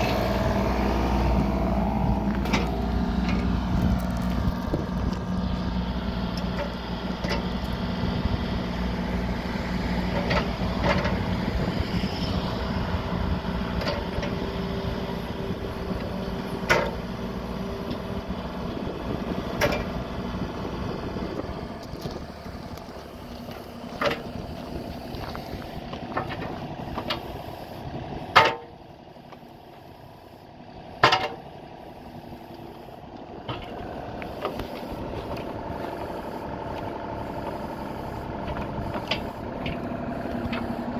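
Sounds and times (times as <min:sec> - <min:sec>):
diesel engine humming: 0:00.0 - 0:40.9
sharp metal knocks: 0:31.0 - 0:31.4.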